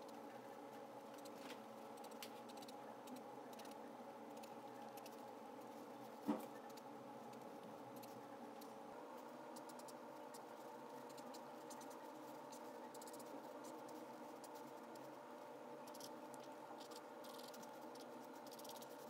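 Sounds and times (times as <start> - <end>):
marker scratching on paper: 9.6 - 15.1, 15.9 - 19.0.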